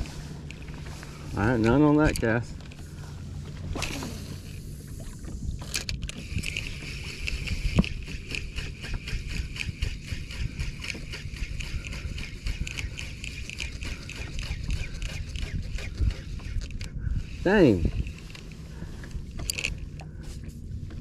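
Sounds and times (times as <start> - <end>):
wind and water: 0.0 - 21.0
sharp clicks: 5.6 - 16.9
fishing reel whirring: 5.6 - 20.2.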